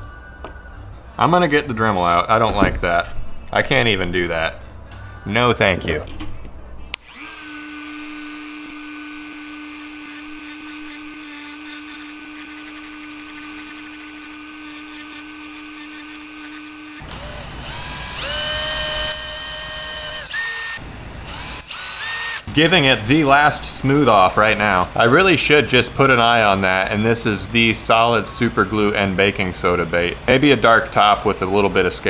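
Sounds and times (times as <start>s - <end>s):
cordless drill drilling: 7.0s - 23.4s
rotary tool sanding whine: 7.0s - 24.9s.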